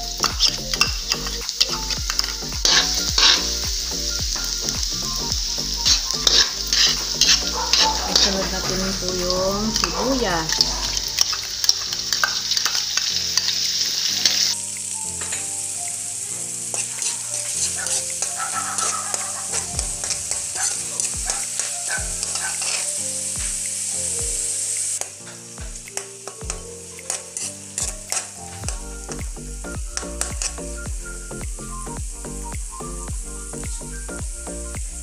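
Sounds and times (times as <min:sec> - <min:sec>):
onion sizzling in hot oil: 0:00.0 - 0:35.0
metal ladle scraping wok: 0:00.2 - 0:03.6, 0:05.8 - 0:14.6, 0:16.5 - 0:23.0, 0:27.1 - 0:28.4.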